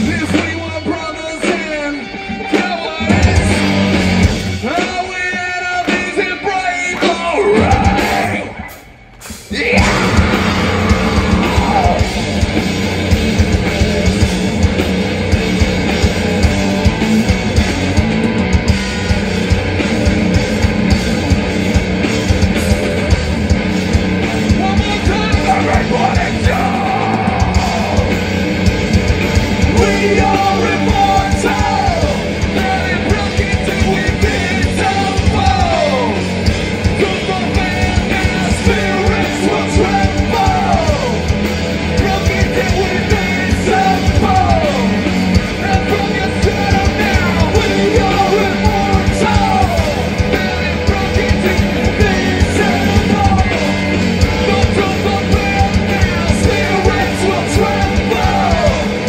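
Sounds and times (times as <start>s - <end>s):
bass guitar: 0.0s - 59.0s
distorted guitars: 0.0s - 59.0s
pounding drums: 0.0s - 59.0s
shouted and sung vocals: 4.6s - 8.7s, 9.5s - 12.6s, 24.5s - 28.7s, 29.4s - 59.0s.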